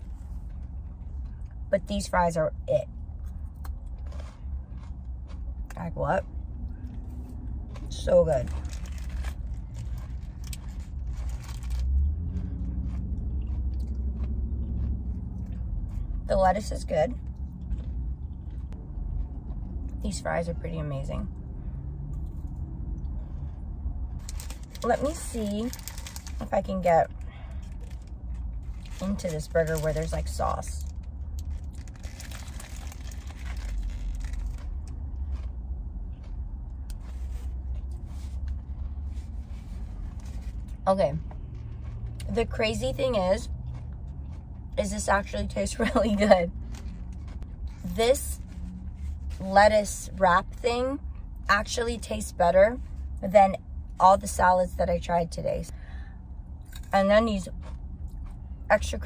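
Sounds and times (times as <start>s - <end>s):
low rumble inside car: 0.0s - 59.0s
steady low hum: 0.0s - 59.0s
person chewing crunchy food: 3.1s - 16.3s, 17.1s - 20.0s, 22.0s - 26.5s, 27.2s - 44.8s, 46.5s - 49.4s, 56.6s - 58.7s
paper wrapper crinkling: 8.5s - 11.9s, 24.2s - 26.5s, 27.7s - 34.9s.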